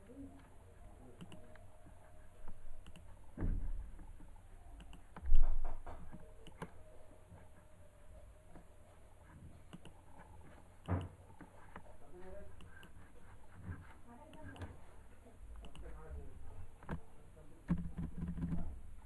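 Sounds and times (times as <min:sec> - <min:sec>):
computer clicks: 0:01.2 - 0:01.6, 0:02.5 - 0:03.1, 0:04.8 - 0:06.8, 0:09.7 - 0:10.0, 0:15.6 - 0:16.0.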